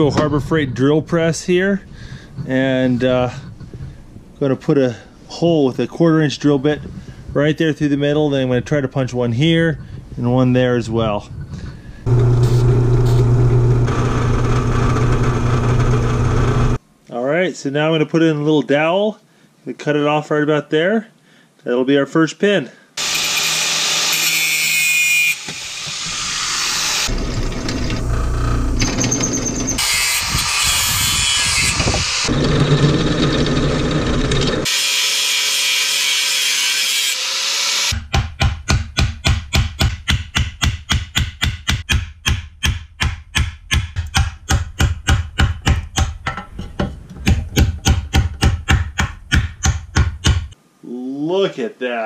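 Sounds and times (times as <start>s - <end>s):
angle grinder cutting steel: 12.1s - 16.8s, 23.0s - 38.0s.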